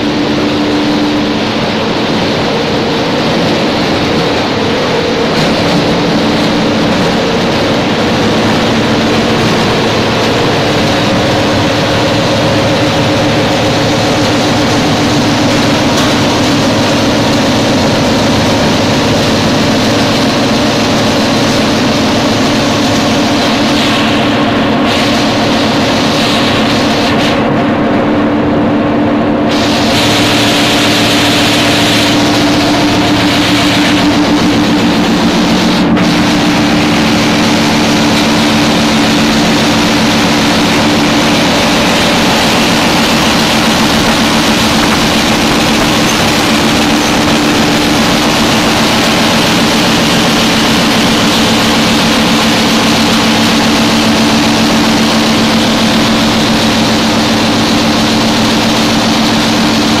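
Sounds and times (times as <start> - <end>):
constant low hum: 0.0 - 60.0
machinery roar: 0.0 - 60.0.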